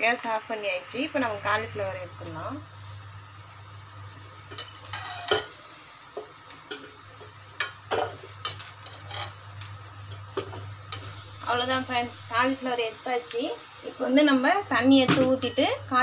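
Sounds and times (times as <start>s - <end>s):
metal spoon scraping metal pan: 4.6s - 5.5s, 8.4s - 9.4s.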